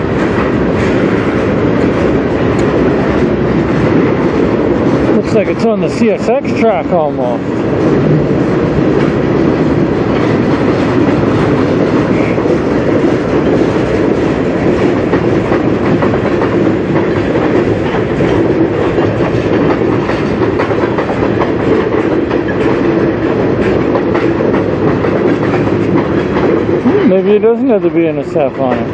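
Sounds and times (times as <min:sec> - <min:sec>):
train wheels rumbling on rail: 0:00.0 - 0:28.9
wheels clicking over rail joints: 0:00.0 - 0:28.9.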